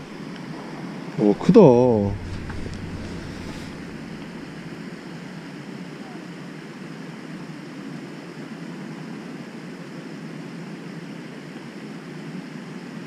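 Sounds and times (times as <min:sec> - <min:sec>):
faint hiss: 0:01.2 - 0:05.0
low rumble: 0:01.2 - 0:05.1.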